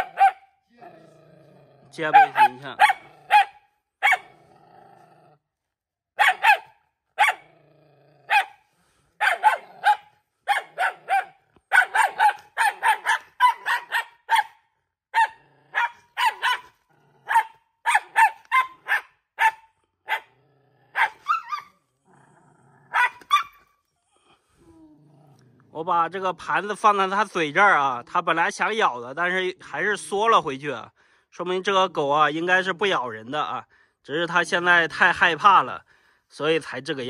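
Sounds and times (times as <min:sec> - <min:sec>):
dog barking: 0:00.0 - 0:00.5, 0:02.0 - 0:04.4, 0:06.2 - 0:07.5, 0:08.3 - 0:08.6, 0:09.2 - 0:21.7, 0:22.9 - 0:23.6
dog growling: 0:00.7 - 0:03.5, 0:04.2 - 0:05.5, 0:07.4 - 0:10.1, 0:15.4 - 0:17.6, 0:19.9 - 0:23.2, 0:24.0 - 0:25.8.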